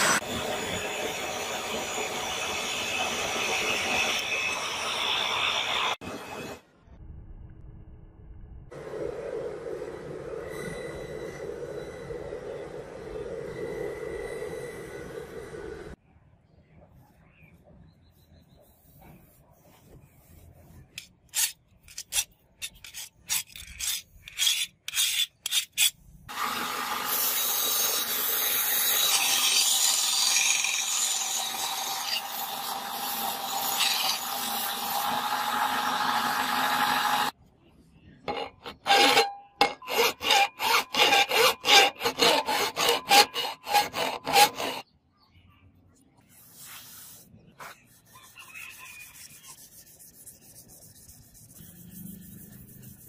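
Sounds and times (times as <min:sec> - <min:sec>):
abrasive scraping steel blade: 0:20.8 - 0:26.0, 0:38.2 - 0:44.8
belt grinder running: 0:26.3 - 0:37.3, 0:38.8 - 0:44.8
rubbing strokes: 0:46.2 - 0:53.0.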